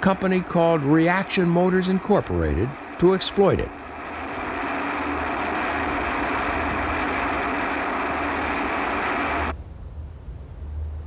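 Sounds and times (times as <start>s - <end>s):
rocket motor roaring: 0.0s - 9.5s.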